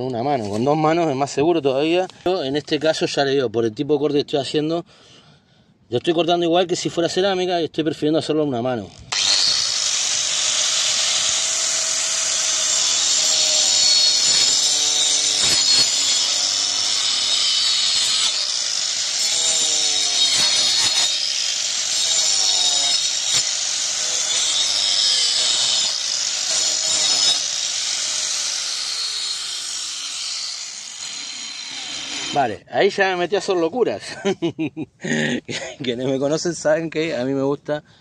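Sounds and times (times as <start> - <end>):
angle grinder cutting wood: 9.0 - 32.6.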